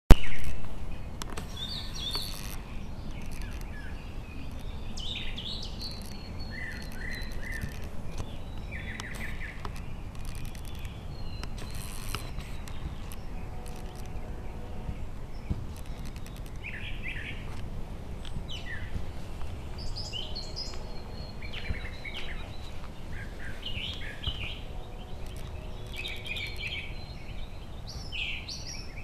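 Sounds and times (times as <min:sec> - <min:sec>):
songbirds chirping and calling: 0:00.2 - 0:29.0.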